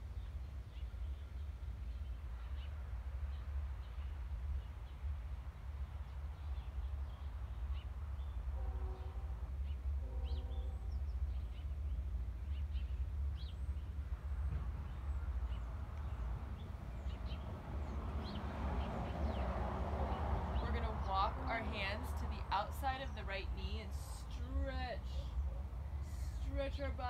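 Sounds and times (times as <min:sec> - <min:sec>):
small birds chirping: 0:00.0 - 0:27.0
steady low rumble: 0:10.8 - 0:27.0.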